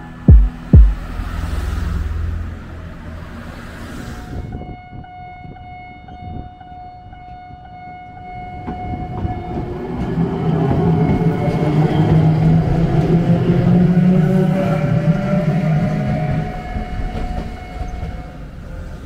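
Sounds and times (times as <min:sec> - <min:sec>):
train approaching with rumble: 0:00.0 - 0:19.0
level crossing warning bell: 0:05.0 - 0:11.9, 0:16.3 - 0:18.6.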